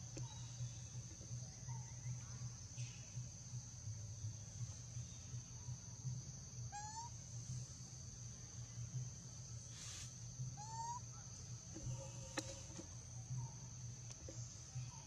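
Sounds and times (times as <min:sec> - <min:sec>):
faint chirps: 0:09.6 - 0:15.0.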